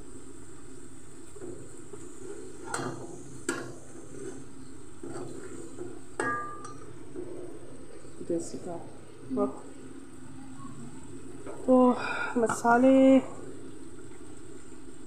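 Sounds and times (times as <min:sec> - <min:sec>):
low sizzle of frying: 0:00.0 - 0:15.0
metal spoon scraping a pot: 0:02.2 - 0:06.8.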